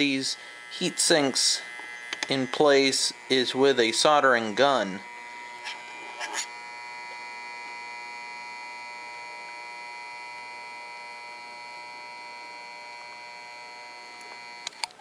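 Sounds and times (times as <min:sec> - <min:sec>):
soldering gun buzzing: 0:00.0 - 0:15.0
sharp clicks: 0:01.7 - 0:02.4.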